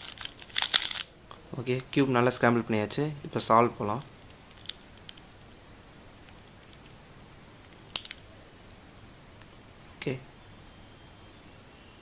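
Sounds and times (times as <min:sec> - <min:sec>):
puzzle cube plastic clicks: 0:00.0 - 0:01.1.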